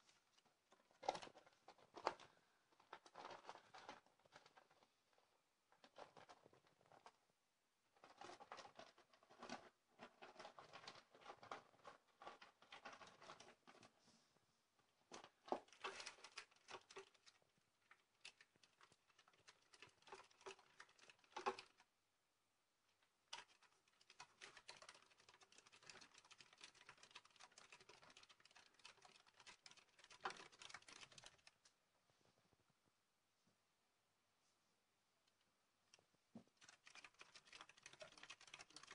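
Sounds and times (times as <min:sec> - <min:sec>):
hedgehog running in plastic wheel: 0:00.0 - 0:04.9, 0:05.8 - 0:07.2, 0:07.9 - 0:13.9, 0:15.1 - 0:21.9, 0:23.3 - 0:31.7, 0:36.5 - 0:38.9.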